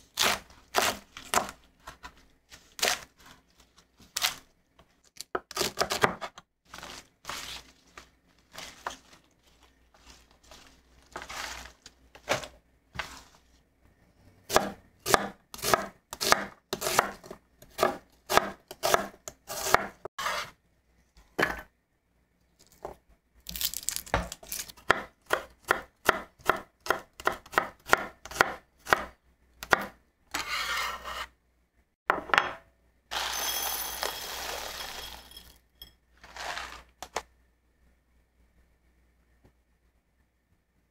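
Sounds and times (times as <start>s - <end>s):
knife chopping on wooden board: 14.5s - 20.4s, 24.9s - 30.5s
grains poured into bowl: 33.1s - 35.6s.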